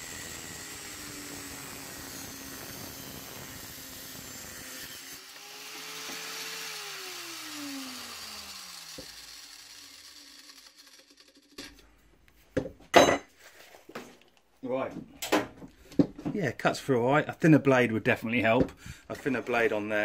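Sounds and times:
angle grinder motor: 0:00.0 - 0:11.9.

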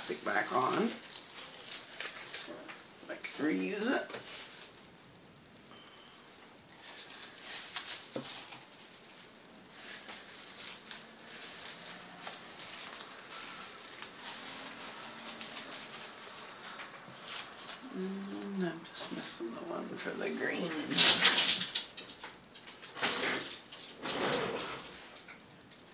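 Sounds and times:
plastic wrap crinkling: 0:00.0 - 0:25.9.

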